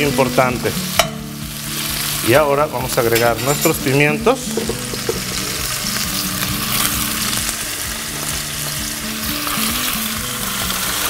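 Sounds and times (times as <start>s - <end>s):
meat sizzling in oil: 0.0s - 11.0s
peppers added to pan: 2.9s - 7.6s.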